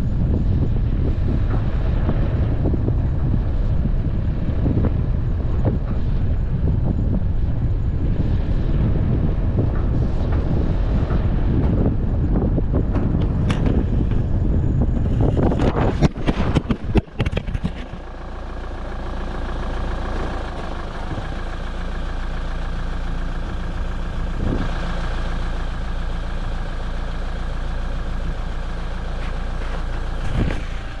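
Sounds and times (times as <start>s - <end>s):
vehicle engine running: 0.0s - 31.0s
sharp knocks and clicks: 15.5s - 18.0s.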